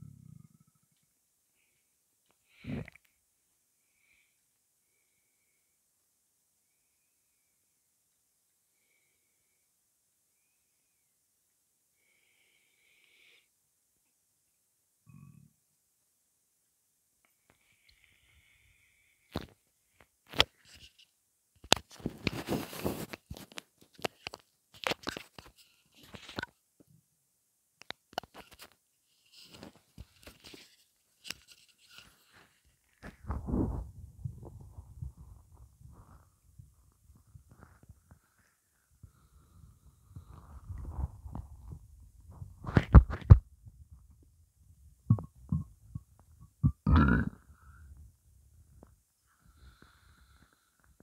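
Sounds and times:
stomach gurgling: 45.1 - 47.9.

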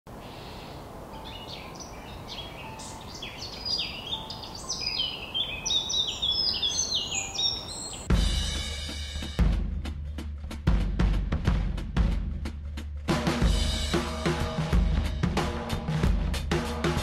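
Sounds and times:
small birds chirping: 0.1 - 8.2
drum-led music: 8.0 - 17.0.

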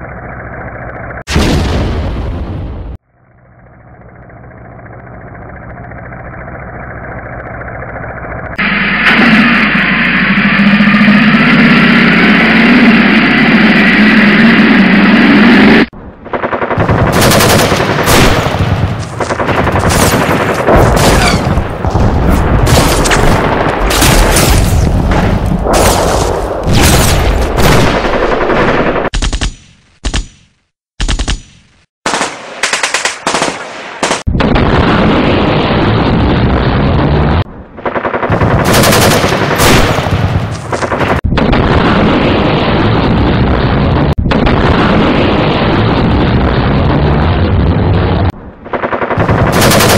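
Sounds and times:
engine running: 0.0 - 1.3, 2.9 - 17.9
machine-gun bursts: 16.8 - 18.3, 38.3 - 39.9, 48.8 - 49.9.

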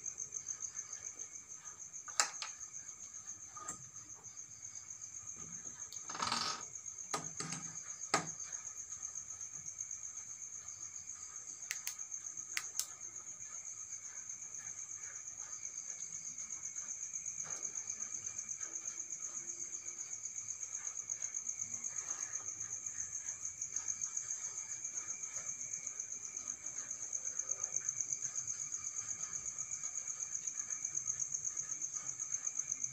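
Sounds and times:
crickets chirping: 0.0 - 32.9
sharp clicks and knocks: 2.1 - 2.7, 5.8 - 8.4.

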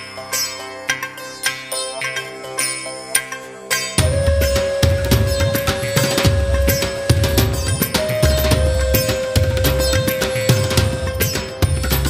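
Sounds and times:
steady drum beat: 4.0 - 12.0.

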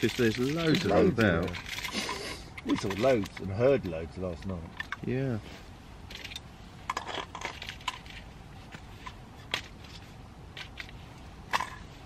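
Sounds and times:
light clicks of small items: 0.0 - 5.1
rustling of small items: 0.0 - 12.0.

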